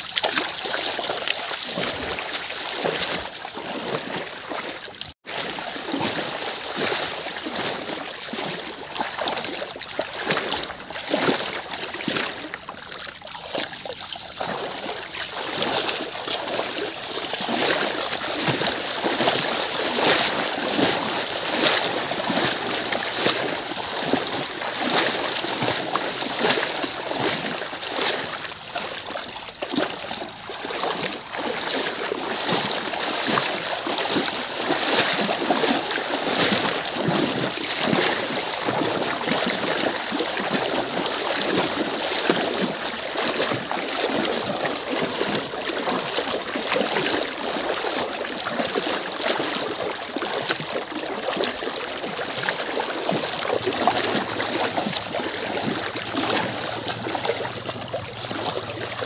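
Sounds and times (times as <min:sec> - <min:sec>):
cow hooves splashing in water: 0:00.0 - 0:59.0
person's footsteps splashing: 0:00.0 - 0:59.0.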